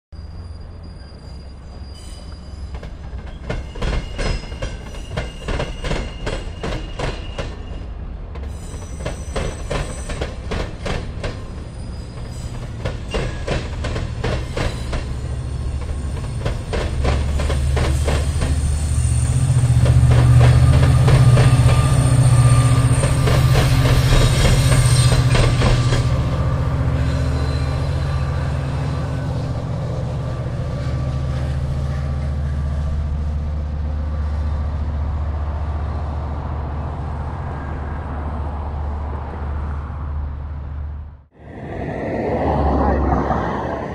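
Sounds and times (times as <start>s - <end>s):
wheel squeal: 0.2s - 7.9s, 11.6s - 13.5s, 27.0s - 28.4s
train wheels clacking over rails: 2.7s - 28.2s
locomotive drone: 13.6s - 43.9s.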